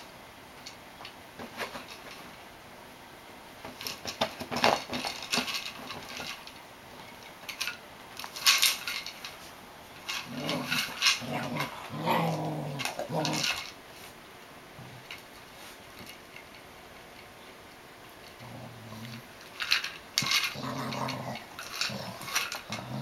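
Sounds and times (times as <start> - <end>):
plastic toy clattering: 3.6 - 6.6, 7.2 - 9.4, 10.0 - 13.8, 18.2 - 23.0
dog growling: 10.2 - 13.7, 18.4 - 19.3, 20.2 - 23.0.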